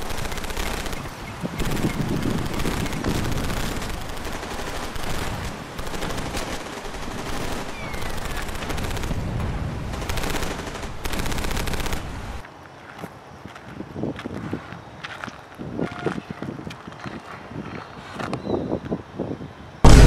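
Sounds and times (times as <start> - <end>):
automatic gunfire: 0.0 - 9.2.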